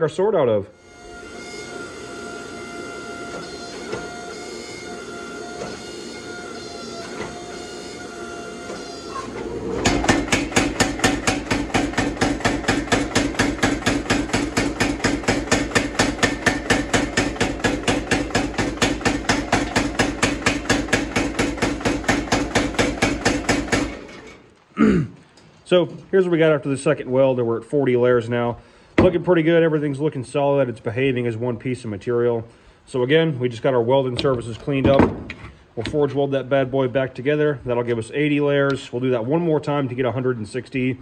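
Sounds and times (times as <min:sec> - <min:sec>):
forge running: 0:00.8 - 0:24.9
power hammer pounding steel: 0:08.7 - 0:24.3.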